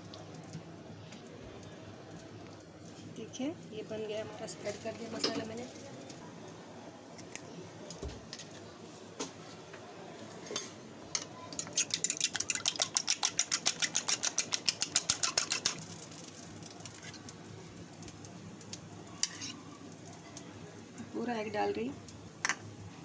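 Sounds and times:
metal utensil beating egg in bowl: 0:11.5 - 0:15.8.

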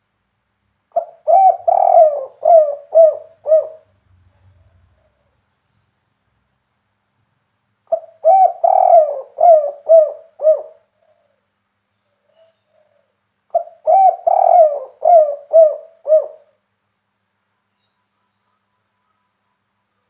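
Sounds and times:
dove cooing: 0:00.9 - 0:05.4, 0:07.9 - 0:11.5, 0:12.2 - 0:16.6.

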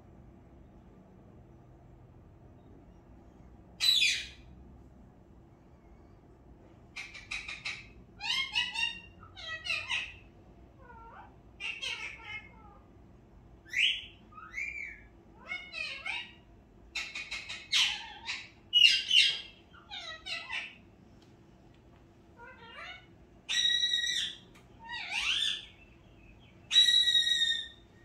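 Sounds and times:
animal chirps and squawks: 0:07.0 - 0:12.8, 0:13.7 - 0:16.4, 0:17.0 - 0:20.8, 0:22.4 - 0:25.8, 0:26.7 - 0:28.0.

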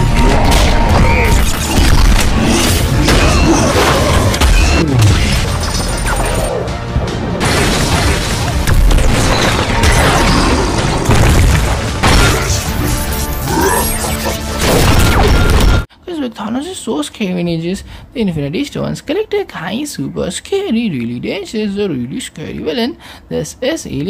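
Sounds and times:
background music: 0:00.0 - 0:15.9
booms and crashes: 0:07.4 - 0:12.7.

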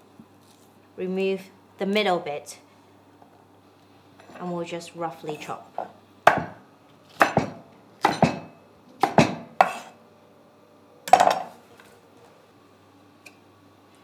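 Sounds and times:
knife chopping on wooden board: 0:06.3 - 0:09.9.

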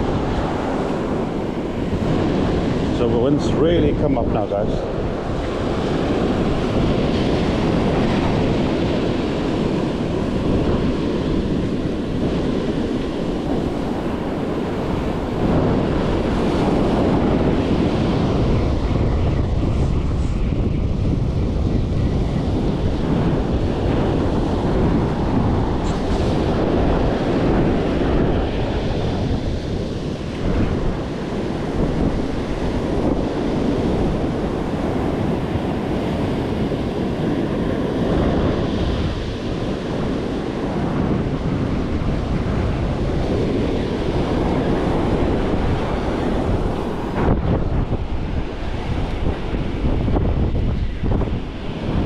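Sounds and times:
surf breaking on beach: 0:00.0 - 0:52.0
wind buffeting microphone: 0:00.0 - 0:52.0.

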